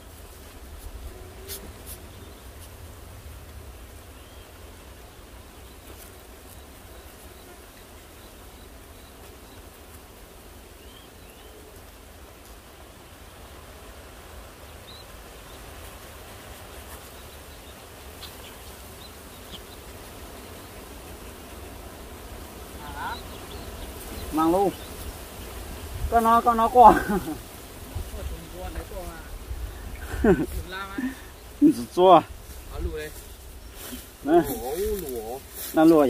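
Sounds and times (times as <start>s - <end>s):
insects humming: 0.0s - 36.0s.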